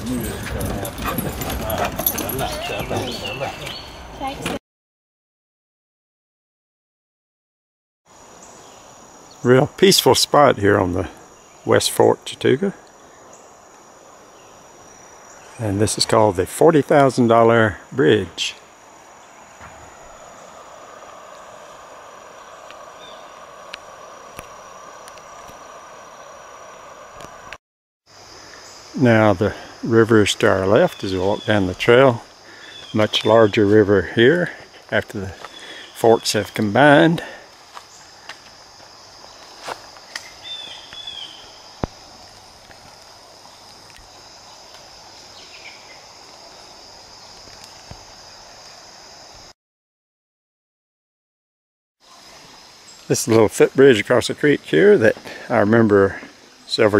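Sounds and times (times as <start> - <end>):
crickets trilling: 0.0 - 4.4, 8.1 - 49.6, 52.0 - 56.9
insects chirring: 0.0 - 4.5, 8.1 - 49.6, 52.0 - 56.9
bird chirping: 2.0 - 4.4, 21.2 - 23.6, 32.5 - 33.7, 39.2 - 41.7
flowing river water: 18.6 - 27.5.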